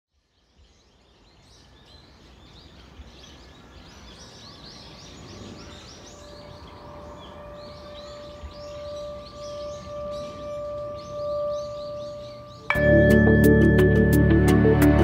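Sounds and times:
birds chirping: 0.2s - 15.0s
steady ringing tone: 6.1s - 15.0s.

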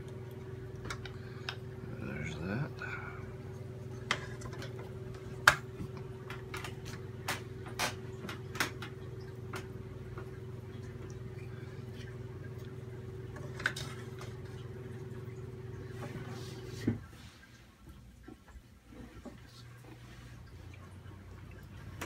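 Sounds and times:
steady low hum: 0.0s - 22.0s
wooden spoons working butter: 3.9s - 7.1s.

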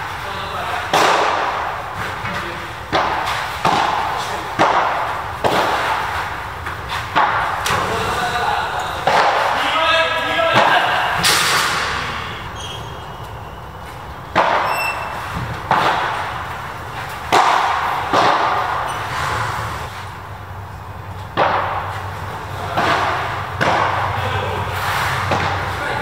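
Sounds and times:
padel ball hit by rackets: 2.9s - 6.4s, 9.0s - 9.6s, 14.2s - 18.9s, 21.3s - 24.2s, 25.2s - 25.8s.

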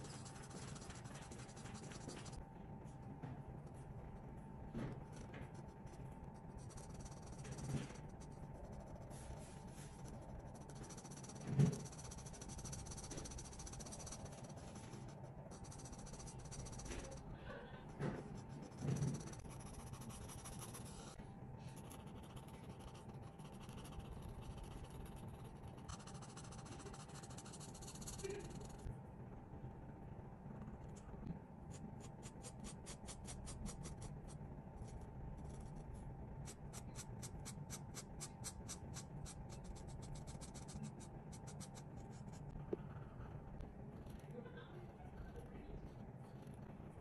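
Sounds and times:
marker scratching on paper: 0.0s - 2.4s, 5.1s - 17.2s, 18.0s - 21.2s, 21.8s - 28.9s, 31.7s - 35.8s, 36.4s - 43.2s.

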